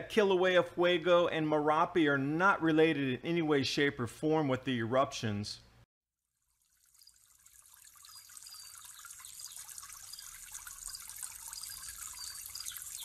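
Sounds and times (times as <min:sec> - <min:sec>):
water trickling and dripping: 0:06.4 - 0:13.0
high plinks: 0:07.9 - 0:13.0.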